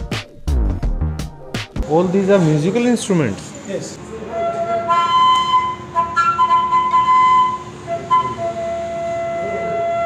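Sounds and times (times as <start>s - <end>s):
bamboo flute playing: 4.1s - 10.0s.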